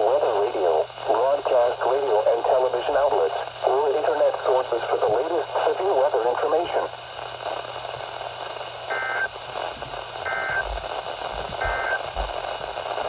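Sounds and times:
radio static hiss: 0.0 - 13.0
warbling two-tone data bursts: 10.2 - 10.7, 11.6 - 12.0.

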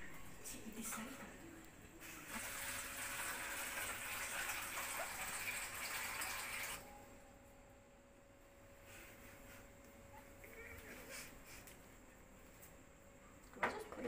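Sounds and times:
tap water running into metal bowl: 2.3 - 6.8.

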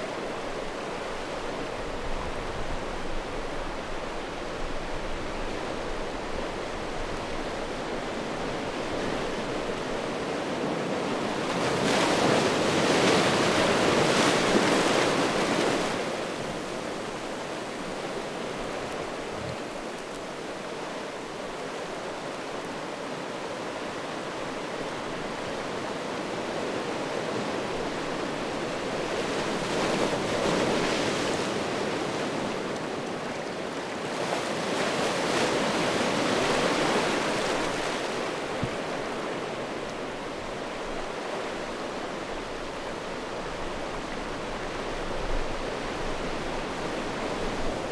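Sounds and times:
waves washing over stones: 8.2 - 22.5.

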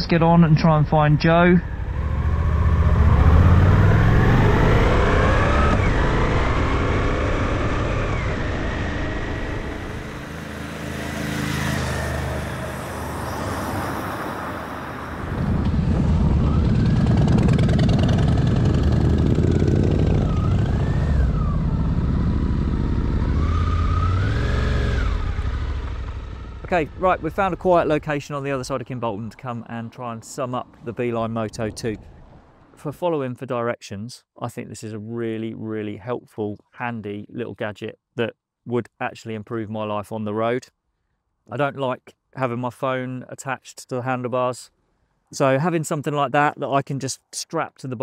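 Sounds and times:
motorcycle engine revving: 0.0 - 28.9.

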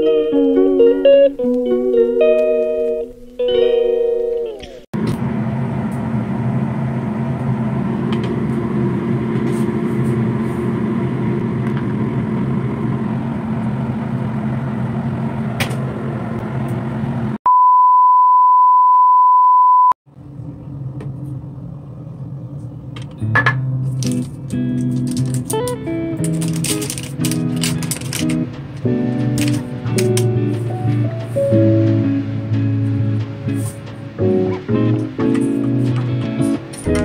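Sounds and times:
machine hum: 4.4 - 17.4, 20.1 - 37.0
loud high beep: 17.5 - 20.0.

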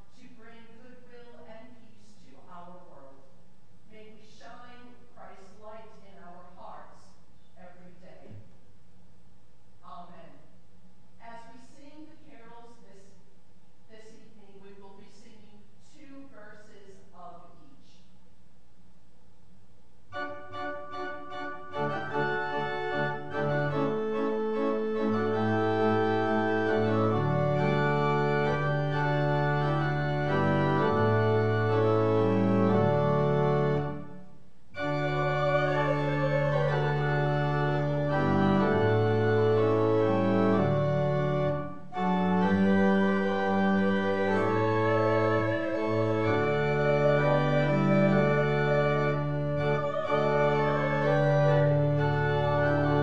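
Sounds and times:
pipe organ playing chords: 20.1 - 53.0
wavering higher melody line: 34.8 - 39.1, 43.8 - 53.0.

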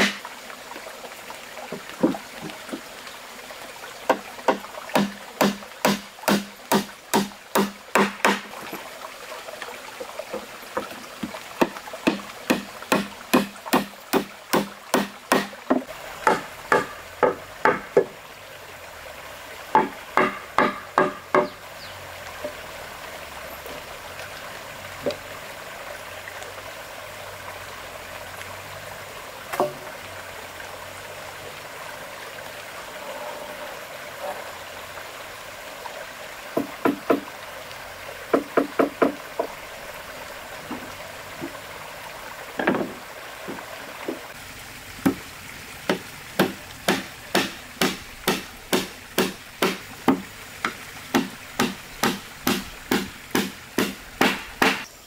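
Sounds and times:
hammer striking wooden planks: 0.0 - 0.2, 4.1 - 8.5, 11.6 - 18.1, 19.7 - 21.6, 36.6 - 37.3, 38.3 - 39.5, 45.9 - 54.9.

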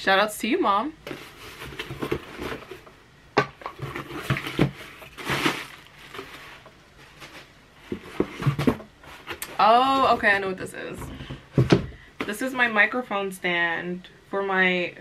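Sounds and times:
cardboard box handled: 1.0 - 2.9, 3.5 - 12.4
plastic packaging crinkling: 3.6 - 7.5.

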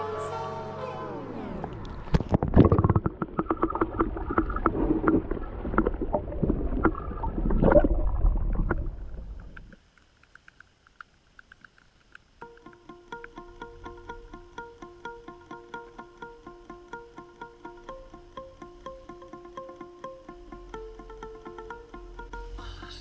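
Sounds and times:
muffled underwater bubbling: 1.8 - 9.8
water sloshing and gurgling: 1.8 - 9.8
sharp clicks: 9.5 - 13.4.

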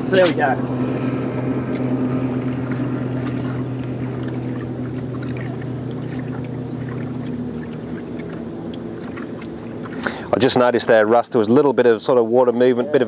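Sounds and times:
boat motor humming: 0.0 - 12.1
faint small ticks: 5.0 - 10.2.

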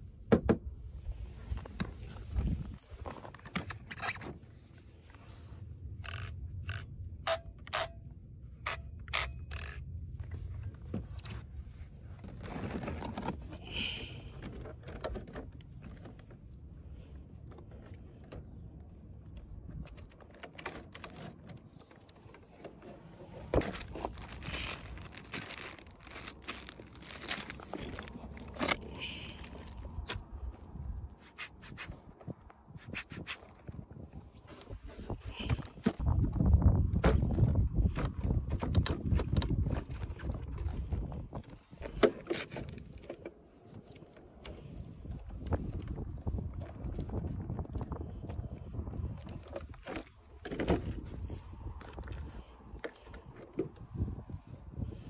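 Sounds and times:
wind rumble on microphone: 0.0 - 55.0.

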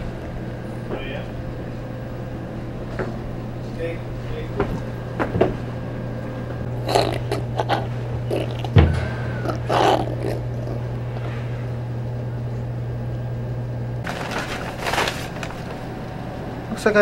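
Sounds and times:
steady low hum: 0.0 - 17.0
apple crunching: 6.7 - 8.8, 9.4 - 11.3.

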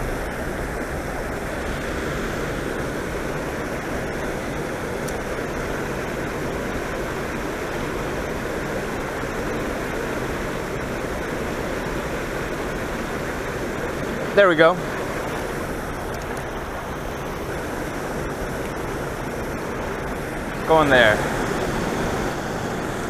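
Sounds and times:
water rushing into river: 0.0 - 23.0.

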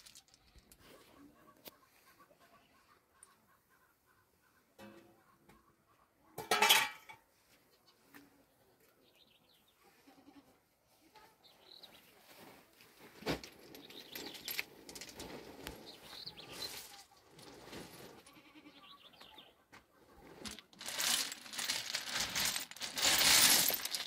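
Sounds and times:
rustling and light clinks: 12.4 - 18.3, 20.3 - 24.0
goat bleating: 18.3 - 18.9.

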